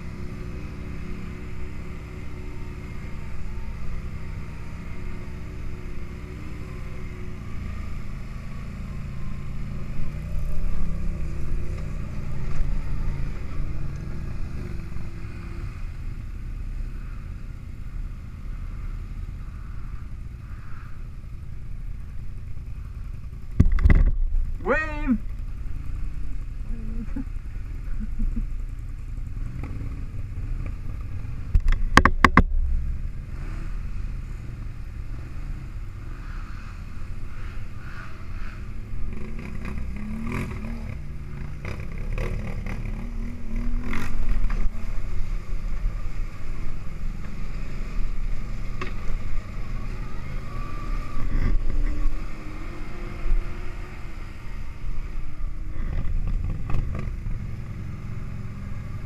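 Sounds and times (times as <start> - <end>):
atv engine revving: 0.0 - 59.0
rattling and knocking over bumps: 23.4 - 24.6, 30.6 - 32.7, 55.8 - 57.2.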